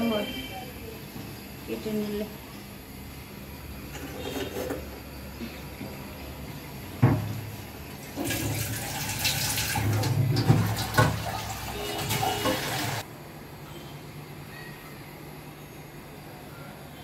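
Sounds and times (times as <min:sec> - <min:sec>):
knocks in sink: 0:07.0 - 0:07.3
tap running into metal sink: 0:09.6 - 0:13.0.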